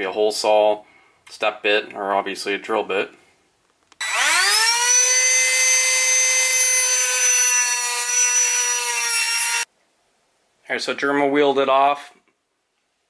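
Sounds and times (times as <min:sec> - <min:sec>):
rotary tool grinding metal: 0:04.0 - 0:09.7.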